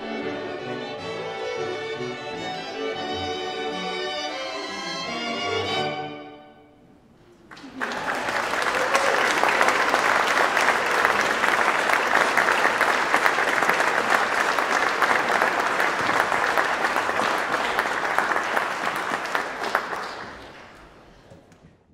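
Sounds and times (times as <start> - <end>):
audience applauding: 7.3 - 21.2.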